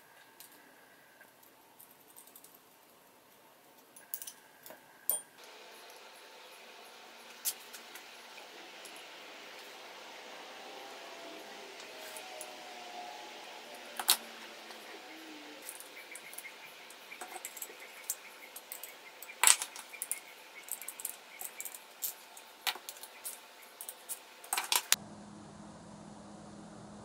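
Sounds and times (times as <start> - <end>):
small metal clinks: 1.8 - 2.9, 3.9 - 6.0, 17.2 - 24.9.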